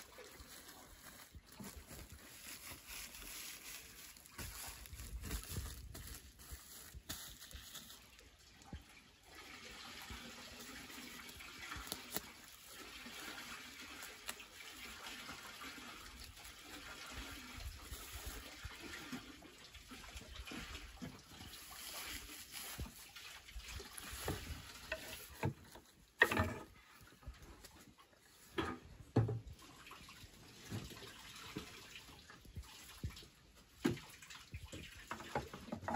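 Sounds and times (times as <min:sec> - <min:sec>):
hands rustling woven sack: 0:00.0 - 0:08.3, 0:10.4 - 0:14.9, 0:20.6 - 0:25.7.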